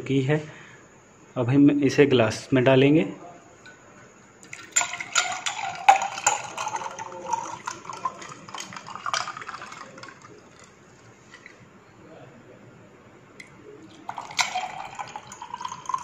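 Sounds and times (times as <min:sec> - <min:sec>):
ice cubes clinking: 0:04.4 - 0:11.6, 0:13.9 - 0:16.0
juice pouring into a glass: 0:04.4 - 0:11.6, 0:13.4 - 0:16.0.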